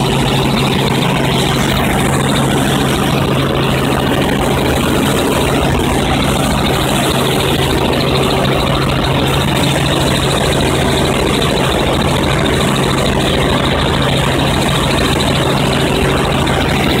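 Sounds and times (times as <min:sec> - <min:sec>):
helicopter engine and rotor drone: 0:00.0 - 0:17.0.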